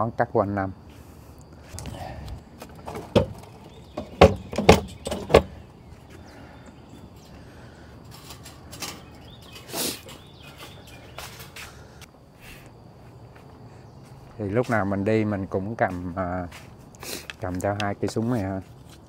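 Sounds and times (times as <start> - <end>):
equipment knocking in truck bed: 2.8 - 5.6.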